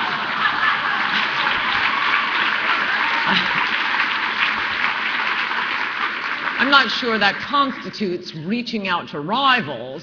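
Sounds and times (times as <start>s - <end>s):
crowd voices: 0.0s - 5.0s
audience applauding: 0.0s - 8.0s.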